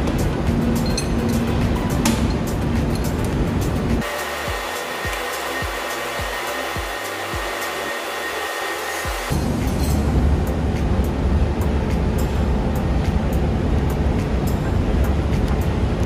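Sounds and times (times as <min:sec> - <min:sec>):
soft low beat: 0:00.0 - 0:07.5
rushing workshop machinery: 0:00.0 - 0:10.4
background music: 0:00.0 - 0:16.0.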